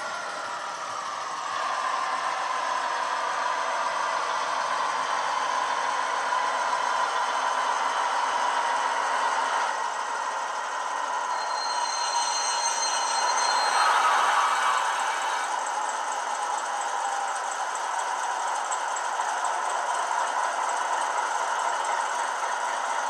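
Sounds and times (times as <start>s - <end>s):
diesel engine sound from small speaker: 0.0s - 23.0s
thin high whine: 9.8s - 18.4s.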